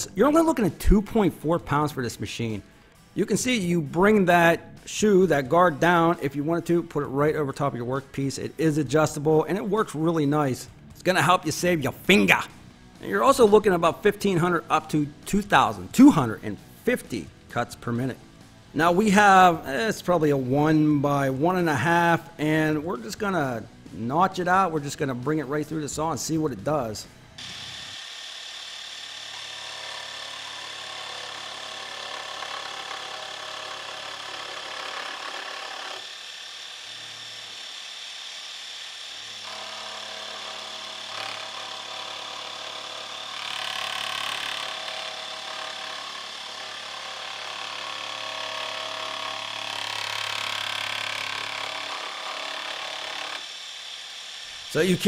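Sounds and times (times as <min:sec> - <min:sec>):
scroll saw cutting wood: 0:18.8 - 0:55.0
steady motor hum: 0:27.2 - 0:54.7.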